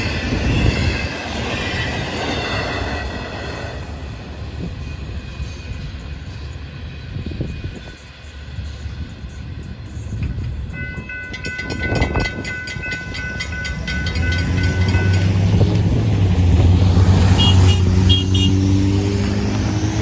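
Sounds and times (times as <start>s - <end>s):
railroad crossing bell ringing: 9.2s - 16.3s
vehicles pulling away: 13.7s - 20.0s.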